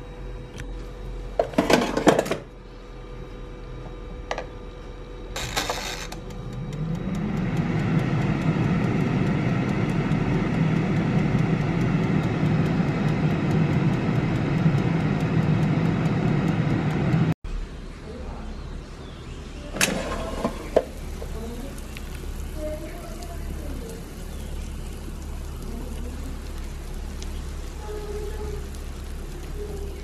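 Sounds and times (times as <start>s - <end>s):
air fryer fan humming: 0.0s - 17.4s, 18.0s - 30.0s
timer ticking faintly: 6.2s - 17.4s.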